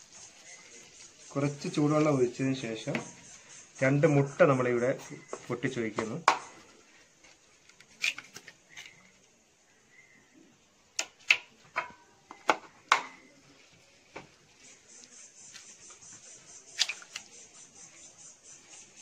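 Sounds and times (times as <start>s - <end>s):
eggshells cracking: 16.7s - 17.3s.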